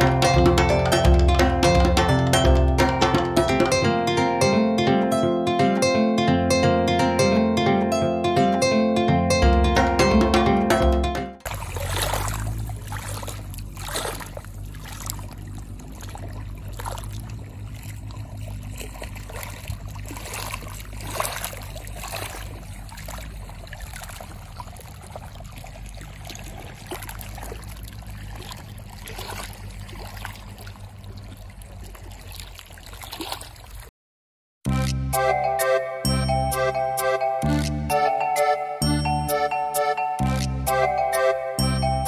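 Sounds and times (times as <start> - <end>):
steady low rumble: 11.4 - 32.3
waves lapping on stony shore: 11.4 - 33.9.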